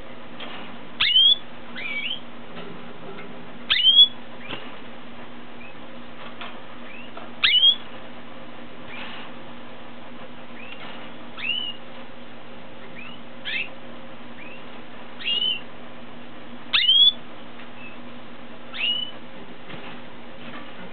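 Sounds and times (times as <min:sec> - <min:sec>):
canary chirping: 0:01.0 - 0:02.3, 0:03.6 - 0:04.6, 0:05.6 - 0:05.9, 0:06.8 - 0:07.9, 0:10.5 - 0:11.9, 0:12.8 - 0:15.7, 0:16.7 - 0:18.0, 0:18.7 - 0:19.2.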